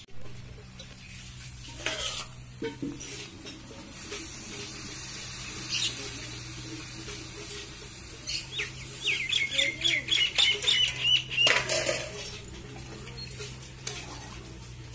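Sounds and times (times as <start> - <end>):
pan hissing: 1.0 - 12.5
water poured into hot pan: 1.6 - 9.1.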